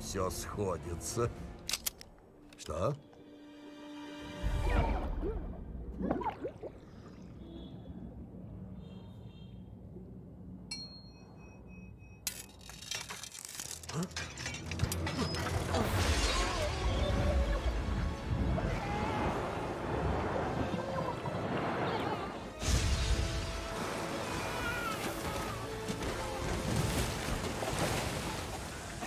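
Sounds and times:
water gushing and splashing: 4.4s - 7.5s, 15.6s - 29.0s
clicks and clinks: 12.2s - 15.5s
glass shattering: 12.3s - 16.8s.

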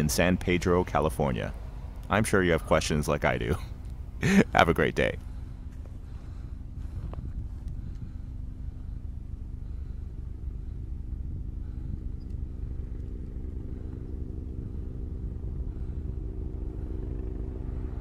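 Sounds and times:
engine running: 0.0s - 18.0s.

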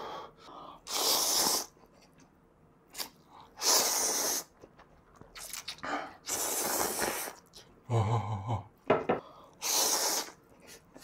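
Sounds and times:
person slurping noodles: 0.9s - 1.8s, 5.6s - 7.5s.

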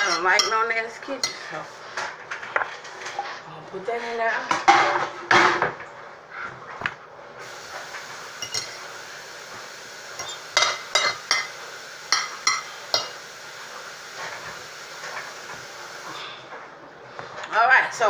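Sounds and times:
dishes clinking: 0.0s - 2.6s, 8.4s - 9.0s, 10.2s - 13.3s
faint steady hiss: 7.4s - 17.6s.

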